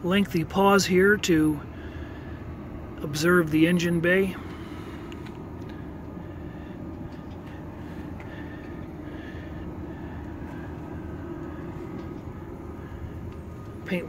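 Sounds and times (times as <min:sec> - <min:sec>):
faint hum: 0:00.0 - 0:14.0
low rumble: 0:04.3 - 0:14.0.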